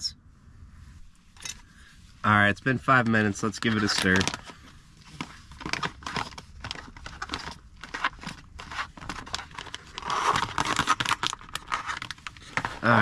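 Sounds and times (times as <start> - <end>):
food pouch crinkling: 3.6 - 13.0.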